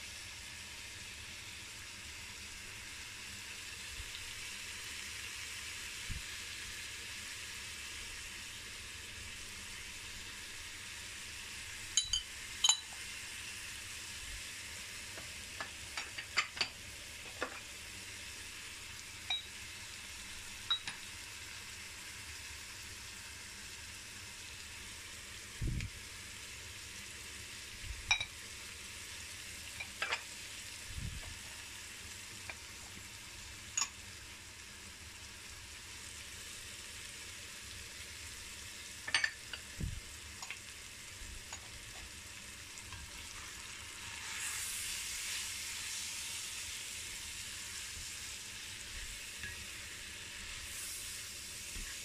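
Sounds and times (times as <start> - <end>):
meat sizzling in a pot: 0.0 - 52.0
spoons tapping a pot: 12.0 - 13.0, 15.2 - 17.6, 19.3 - 19.5, 20.7 - 21.1, 28.1 - 28.3, 29.8 - 30.2, 39.1 - 39.6.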